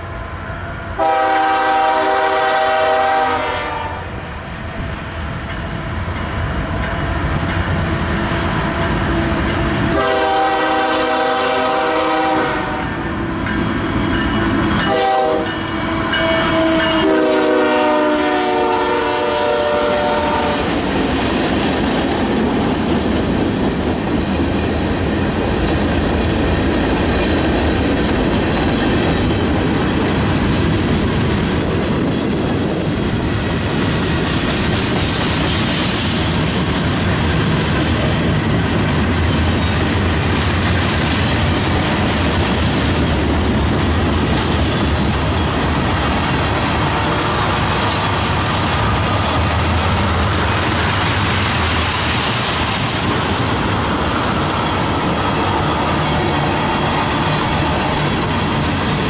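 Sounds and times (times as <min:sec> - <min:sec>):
freight train rumbling past: 0:00.0 - 0:59.0
locomotive air horn: 0:01.0 - 0:04.1, 0:09.9 - 0:12.9, 0:14.8 - 0:20.7.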